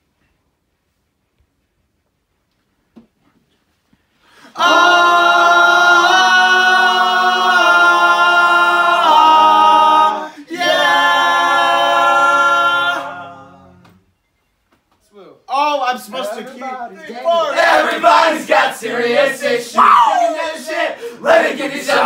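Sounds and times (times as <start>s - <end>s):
male voices singing in harmony: 4.4s - 14.0s, 17.2s - 22.0s.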